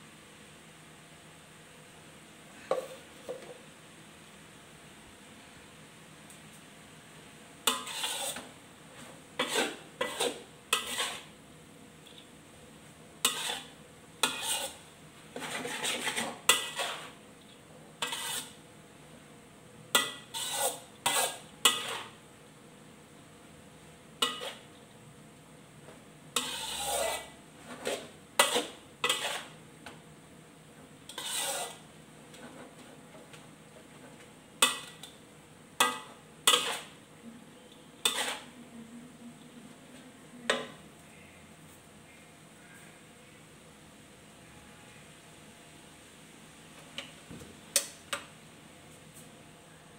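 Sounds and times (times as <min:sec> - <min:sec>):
metal spatula scraping a wok: 0:07.7 - 0:11.4, 0:13.2 - 0:17.2, 0:18.0 - 0:18.6, 0:20.0 - 0:22.2, 0:24.2 - 0:24.7, 0:26.4 - 0:29.6, 0:31.1 - 0:33.1, 0:35.8 - 0:37.0, 0:38.0 - 0:38.6.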